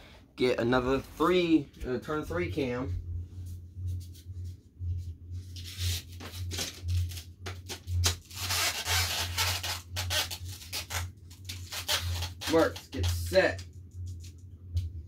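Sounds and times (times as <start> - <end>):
steady low hum: 0.0 - 15.0
rubbing and scraping handling noise: 2.8 - 14.4.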